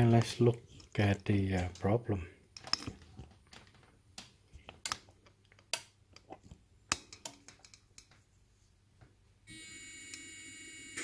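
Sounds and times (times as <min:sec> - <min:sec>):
sharp clicks and taps: 0:02.6 - 0:08.2.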